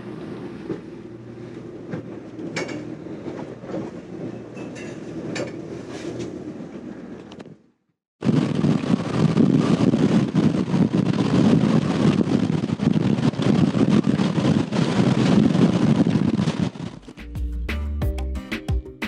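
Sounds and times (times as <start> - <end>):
boat rumbling: 0.0 - 5.7, 8.2 - 17.7.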